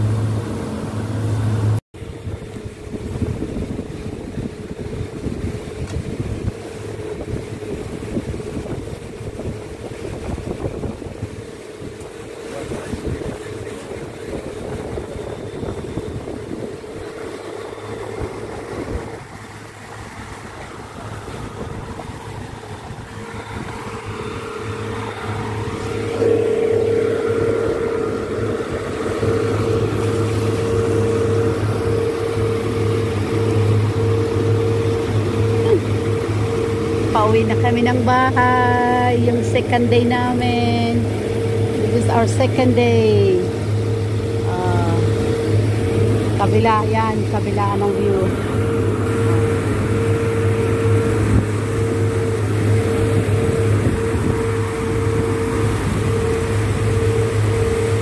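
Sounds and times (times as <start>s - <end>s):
outboard motors running: 0.0s - 58.0s
water rushing: 0.0s - 58.0s
wind on microphone: 1.2s - 58.0s.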